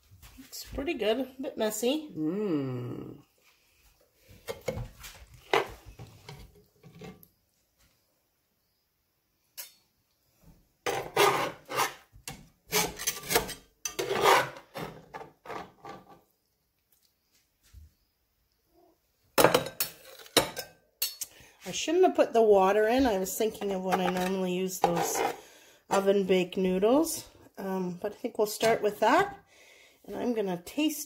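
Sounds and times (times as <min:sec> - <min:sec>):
metal spatula scraping cast iron pot: 0:10.9 - 0:12.1, 0:12.7 - 0:16.2, 0:23.4 - 0:26.2.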